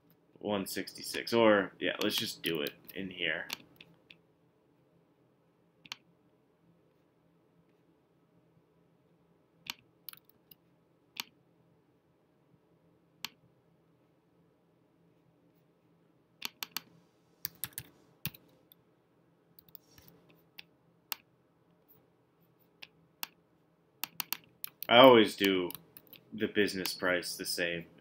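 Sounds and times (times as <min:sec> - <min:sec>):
computer keyboard keystrokes: 0:16.4 - 0:18.4, 0:24.0 - 0:24.9.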